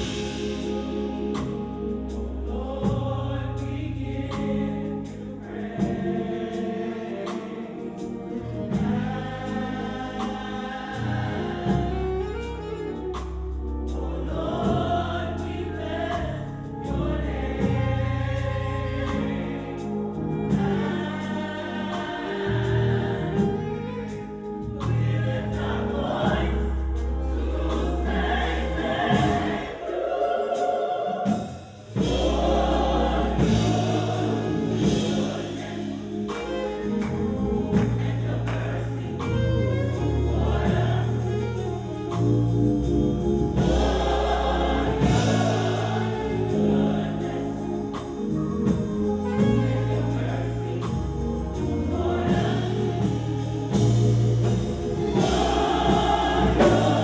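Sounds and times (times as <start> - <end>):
deep bass line: 0.0 - 29.8, 31.9 - 57.0
gospel choir singing: 0.0 - 57.0
drum hits: 31.2 - 39.4, 52.0 - 57.0.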